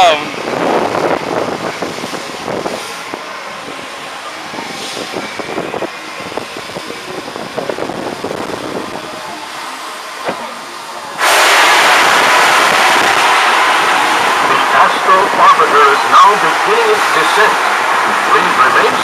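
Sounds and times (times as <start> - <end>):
rush of air: 11.2 - 15.4.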